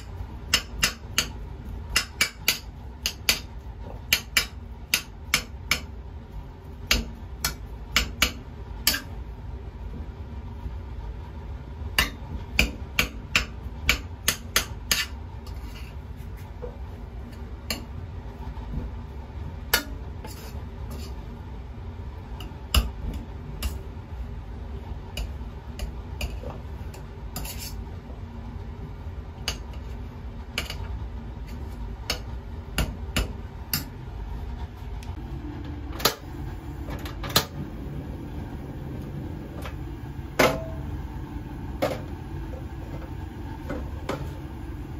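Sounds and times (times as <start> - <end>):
potatoes mashed in steel pot: 0.0 - 6.0, 25.1 - 27.8
low hum: 34.2 - 44.9.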